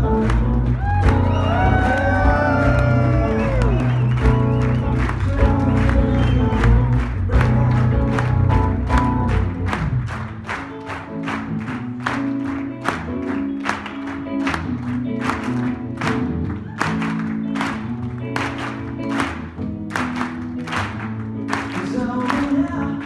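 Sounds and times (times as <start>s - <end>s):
keyboard chords: 0.0s - 16.6s
audience clapping along: 0.0s - 23.0s.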